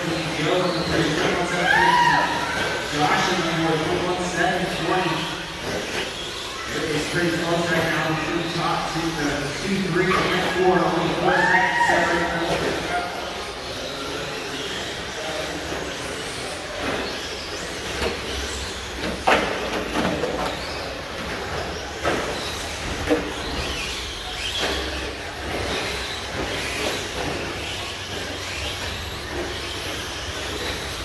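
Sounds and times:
rc truck motor whine: 0:12.2 - 0:31.0.

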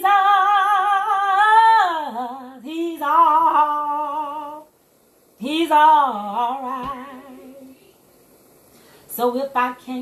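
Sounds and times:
woman singing unaccompanied: 0:00.0 - 0:04.8, 0:05.4 - 0:07.9, 0:09.1 - 0:10.0.

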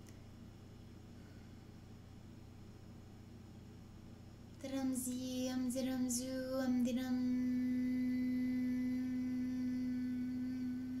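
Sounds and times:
woman vocalizing and humming: 0:04.6 - 0:11.0.

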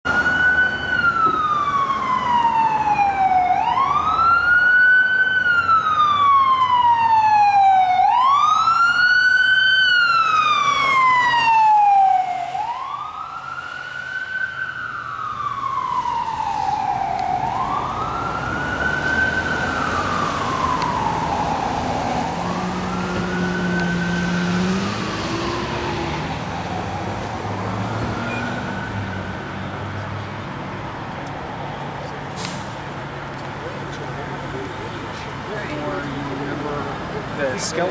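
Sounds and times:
ambulance siren wailing: 0:00.1 - 0:30.0.

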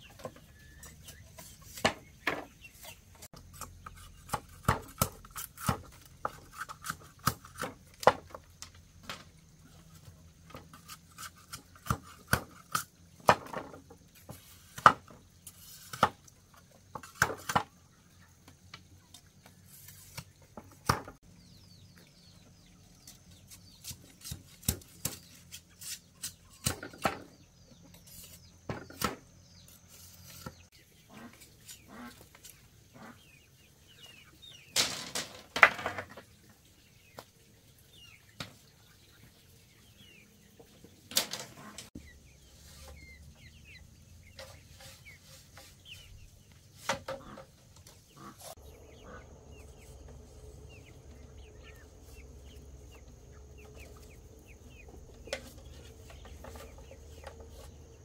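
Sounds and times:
chickens clucking and peeping: 0:00.0 - 0:58.0
machete chopping bamboo: 0:04.2 - 0:08.3, 0:10.9 - 0:13.5, 0:23.7 - 0:27.3.

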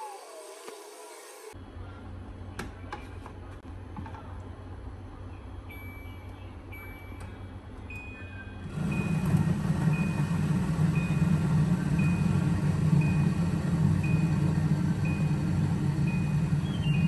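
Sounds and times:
water dispenser pump humming: 0:08.6 - 0:17.0.

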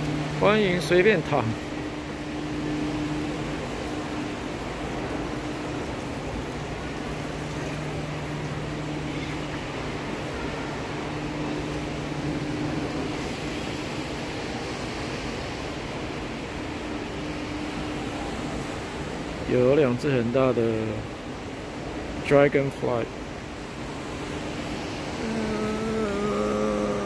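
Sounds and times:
air-conditioning hum: 0:00.0 - 0:27.0
low drone: 0:24.5 - 0:27.0.

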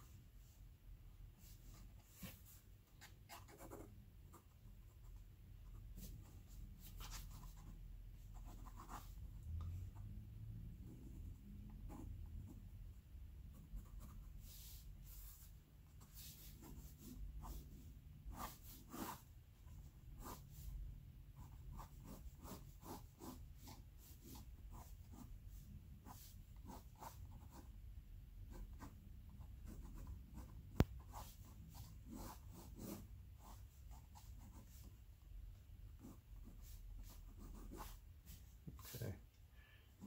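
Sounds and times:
ink pen scratching on paper: 0:01.7 - 0:09.2, 0:13.5 - 0:20.7, 0:21.4 - 0:25.3, 0:26.0 - 0:27.7, 0:28.5 - 0:35.0, 0:36.0 - 0:38.9.

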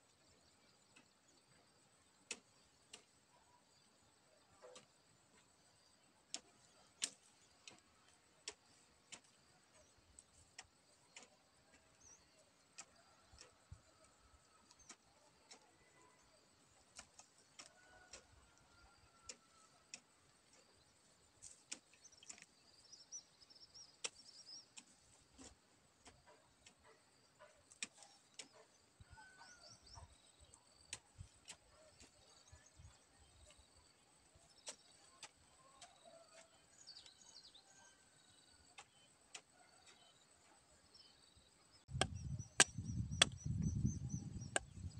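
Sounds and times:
faint bird chirps: 0:00.1 - 0:44.9
hoe striking hard soil: 0:41.9 - 0:43.6.

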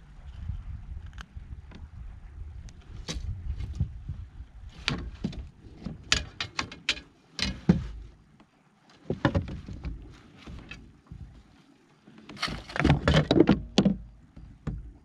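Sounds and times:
fishing gear clattering on kayak: 0:04.7 - 0:08.3, 0:08.9 - 0:15.0.

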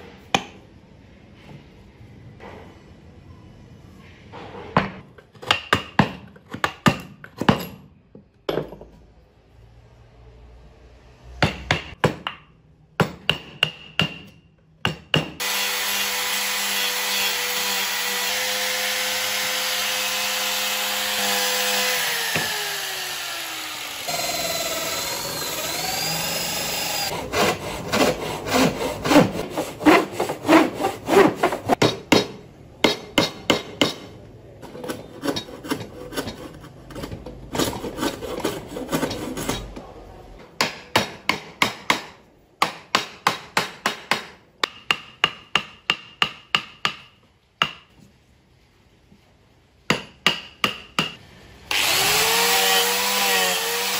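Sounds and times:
chisel knocking on wood: 0:11.4 - 0:15.4, 0:31.8 - 0:34.1, 0:40.6 - 0:47.9, 0:49.9 - 0:51.2
electric drill boring into wood: 0:15.4 - 0:27.1, 0:51.7 - 0:53.9.

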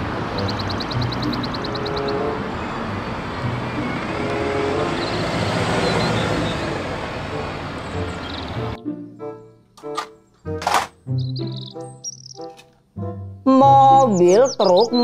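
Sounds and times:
bus driving past: 0:00.0 - 0:10.5.

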